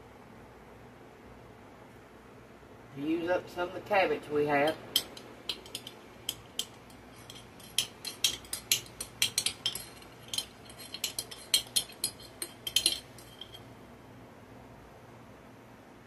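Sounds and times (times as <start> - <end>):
metal utensil clinking in glass jar: 4.6 - 13.7.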